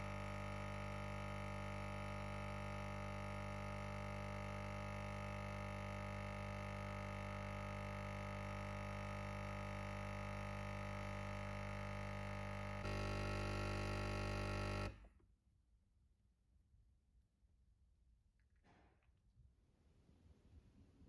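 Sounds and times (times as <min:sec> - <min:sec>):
coffee machine pump humming: 0:00.0 - 0:15.0.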